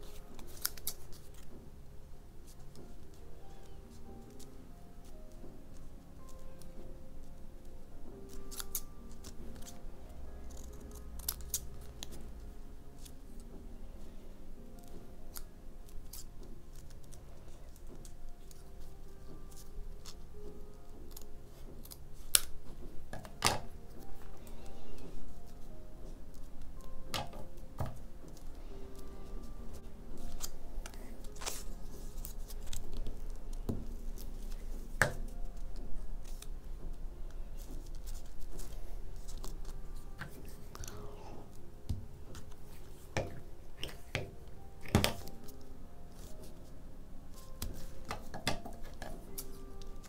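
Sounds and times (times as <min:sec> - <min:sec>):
paper being handled: 0:00.0 - 0:01.6, 0:14.8 - 0:46.7
scissors snipping paper: 0:00.1 - 0:01.5, 0:08.2 - 0:09.8, 0:10.4 - 0:12.3, 0:14.8 - 0:22.6, 0:26.3 - 0:36.6, 0:37.6 - 0:43.2, 0:47.3 - 0:50.0.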